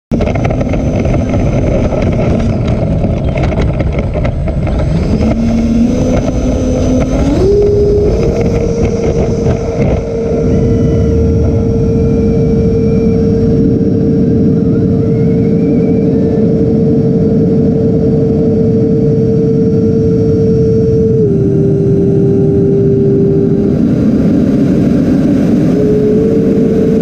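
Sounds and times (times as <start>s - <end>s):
electric ducted fans whining: 0.1s - 27.0s.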